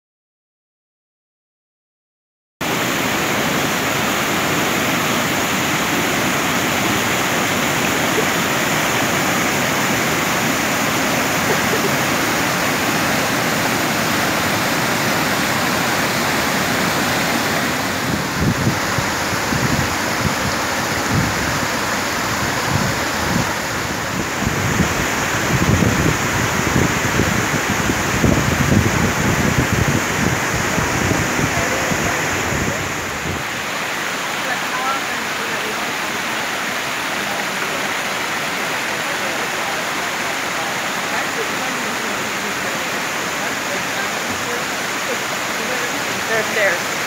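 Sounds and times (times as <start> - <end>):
water rushing and splashing: 2.6 - 47.0.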